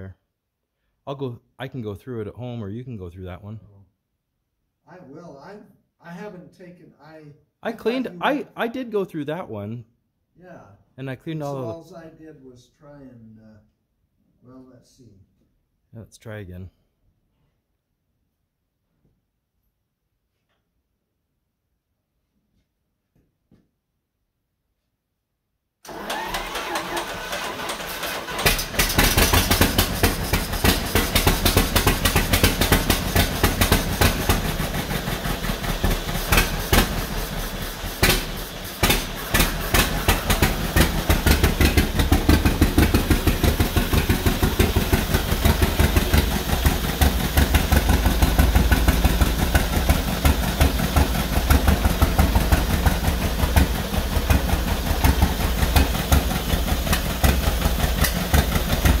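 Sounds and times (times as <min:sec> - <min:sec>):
tractor engine running unevenly: 0:25.9 - 0:59.0.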